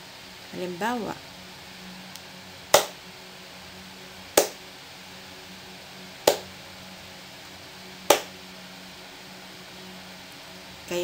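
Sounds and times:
hand claps: 0:02.8 - 0:03.0, 0:04.4 - 0:04.6, 0:06.3 - 0:06.5, 0:08.1 - 0:08.3.

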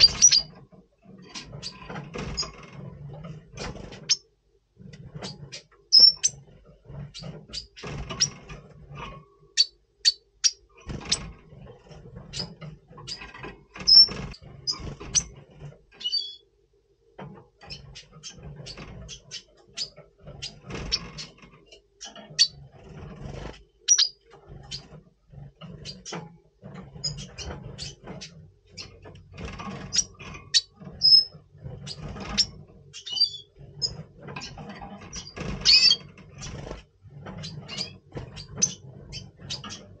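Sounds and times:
bird chirping and twittering: 0:00.0 - 0:16.5, 0:17.3 - 0:40.0
bird hopping and fluttering in box: 0:10.8 - 0:16.4, 0:22.1 - 0:40.0.

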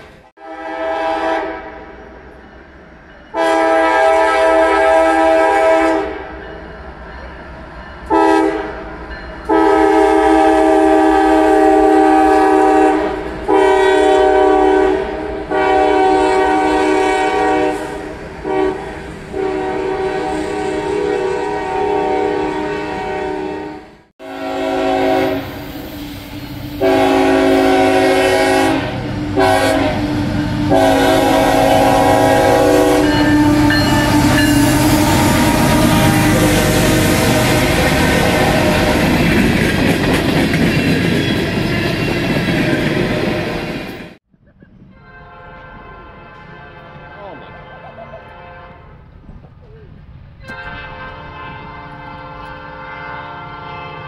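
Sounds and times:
train rumble: 0:00.0 - 0:54.0
locomotive air horn blasts: 0:00.4 - 0:01.9, 0:03.3 - 0:06.3, 0:08.1 - 0:08.8, 0:09.5 - 0:25.8, 0:26.6 - 0:39.1, 0:45.0 - 0:49.0, 0:50.4 - 0:54.0
lower-pitched horn: 0:00.4 - 0:01.9, 0:03.3 - 0:06.3, 0:09.5 - 0:39.2, 0:50.4 - 0:54.0.

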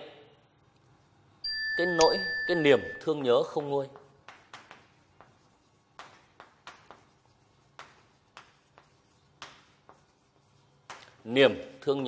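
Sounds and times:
chalk writing on chalkboard: 0:03.0 - 0:11.7.

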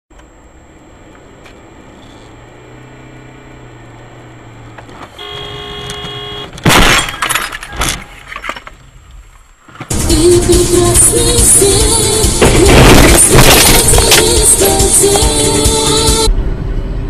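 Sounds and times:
car horn blaring: 0:05.1 - 0:06.6
car collision crash: 0:06.5 - 0:08.8, 0:12.4 - 0:14.4.

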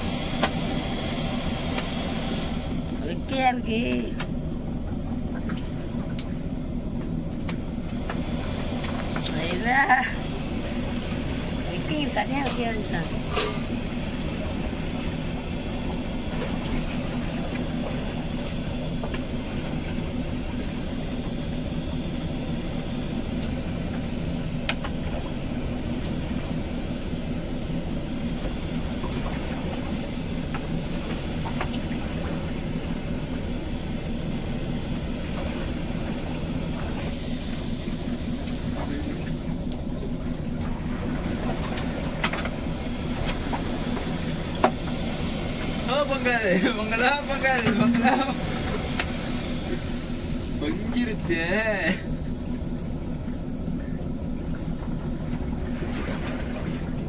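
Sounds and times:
hiss: 0:00.0 - 0:02.9, 0:37.0 - 0:39.5, 0:43.0 - 0:46.0, 0:48.2 - 0:50.8
boat engine droning: 0:00.0 - 0:57.0.

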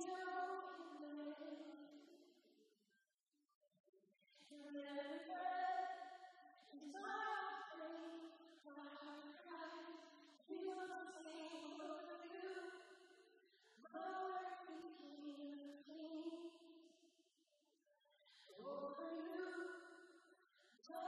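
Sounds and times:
woman singing slow song: 0:00.0 - 0:02.2, 0:04.4 - 0:06.0, 0:06.7 - 0:12.8, 0:18.6 - 0:19.8.

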